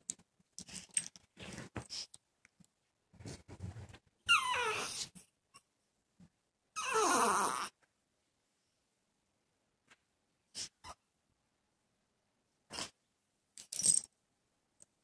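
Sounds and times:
small dog whining: 4.2s - 5.2s, 6.8s - 7.8s.

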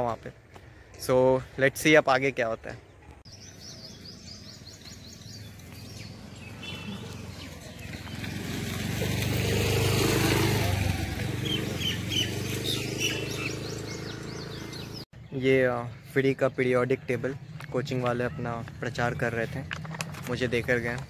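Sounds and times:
birds chirping: 0.0s - 21.0s
vehicle engine passing: 5.4s - 15.0s.

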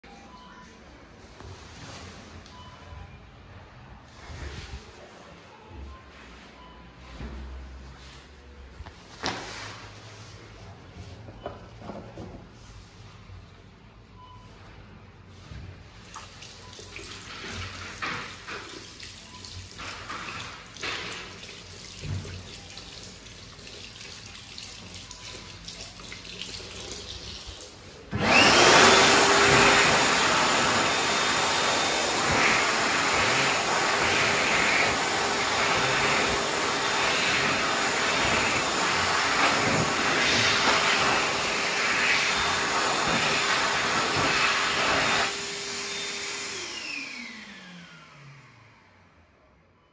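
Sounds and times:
tap water running over hands: 16.1s - 27.8s
hand dryer running: 16.6s - 48.7s.

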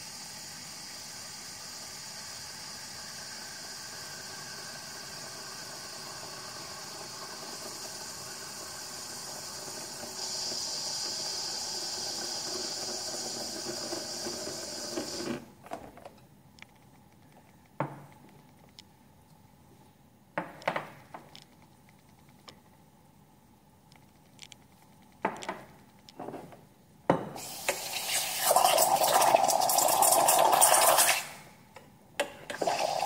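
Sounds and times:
espresso steam wand hissing: 0.0s - 15.4s, 27.4s - 31.4s, 32.5s - 33.0s.

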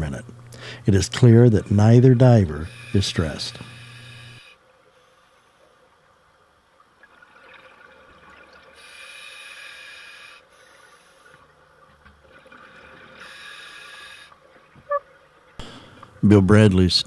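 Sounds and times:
diver breathing through regulator: 0.5s - 0.9s, 2.6s - 5.6s, 8.8s - 11.4s, 13.2s - 14.4s.

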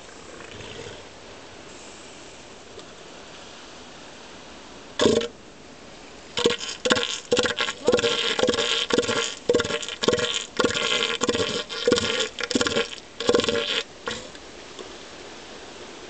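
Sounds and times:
elephant seal harsh pulsing call: 6.4s - 14.4s.

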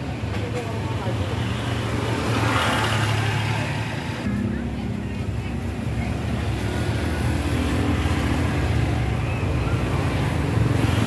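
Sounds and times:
vehicle engine humming: 2.9s - 11.0s.

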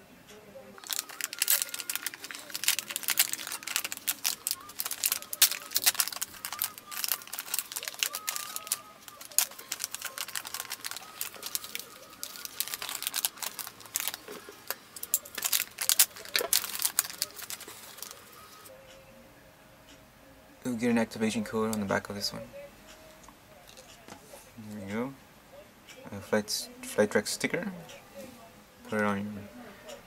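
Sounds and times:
foil bag crinkling: 0.8s - 18.7s.

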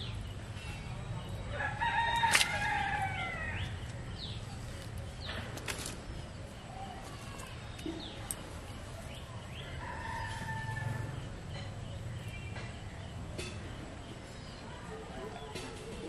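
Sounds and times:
steady low background noise: 0.0s - 16.0s
rooster crowing: 1.5s - 3.6s, 9.8s - 11.3s.

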